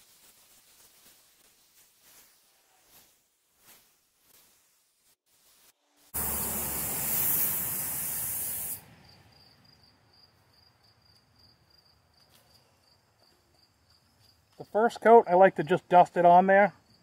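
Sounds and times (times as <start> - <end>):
spray gun air hissing: 6.1 - 8.8.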